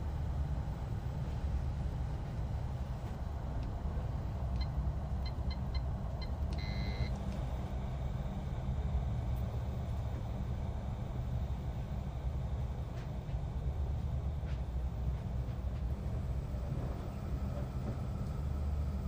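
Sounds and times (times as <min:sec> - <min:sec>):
long electronic beep: 0:06.6 - 0:07.1
short electronic beeps: 0:06.6 - 0:07.1.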